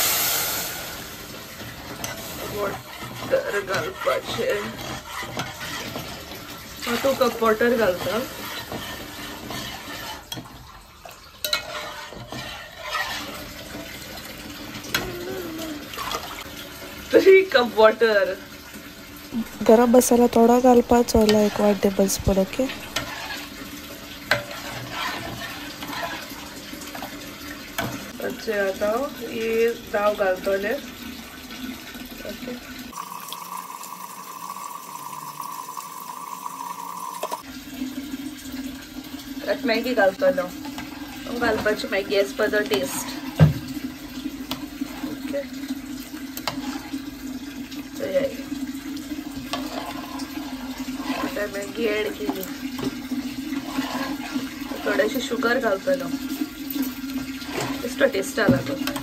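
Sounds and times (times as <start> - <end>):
ladle stirring liquid in pot: 1.2 - 17.2, 18.5 - 28.4, 40.4 - 59.0.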